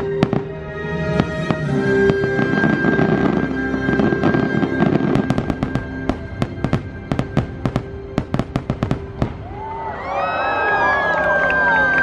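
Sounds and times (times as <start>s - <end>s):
music with held notes: 0.0s - 9.4s
fireworks bangs and crackling: 0.0s - 9.9s.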